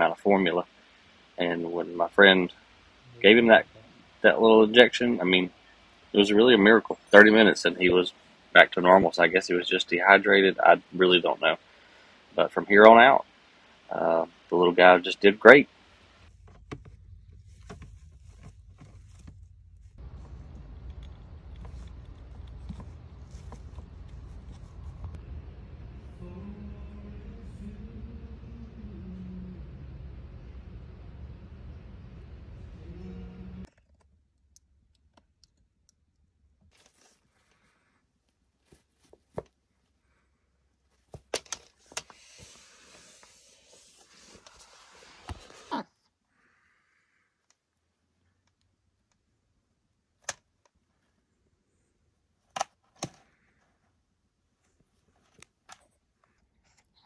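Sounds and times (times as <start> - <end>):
steady hum: 0.0 - 33.7
bird shuffling on bedding: 16.3 - 25.2, 36.7 - 40.2
low rumble: 16.3 - 33.7.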